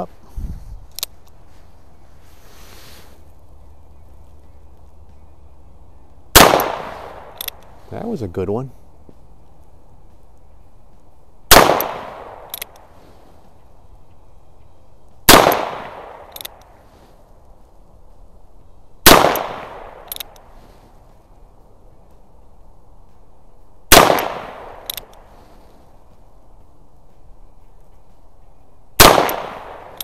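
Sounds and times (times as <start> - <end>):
revolver gunshots: 6.3 - 7.6, 11.5 - 12.6, 15.3 - 16.4, 19.0 - 20.1, 23.9 - 25.0, 29.0 - 30.0.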